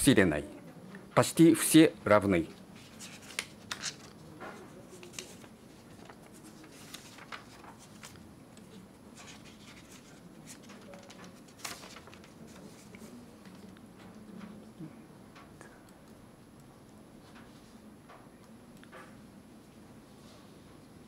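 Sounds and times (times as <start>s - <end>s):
small clicks and rustles: 2.8s - 19.2s.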